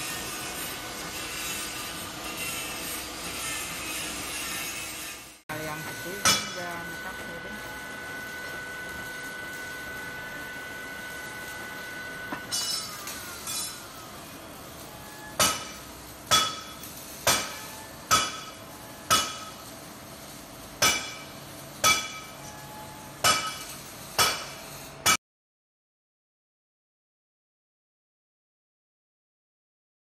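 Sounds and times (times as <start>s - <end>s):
metal-on-metal blows ringing: 15.4s - 19.6s, 20.8s - 22.4s, 23.2s - 24.6s.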